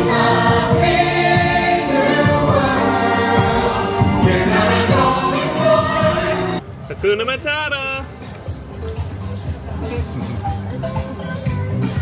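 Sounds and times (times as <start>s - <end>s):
voices singing together: 0.0s - 6.6s
loud backing music: 0.0s - 12.0s.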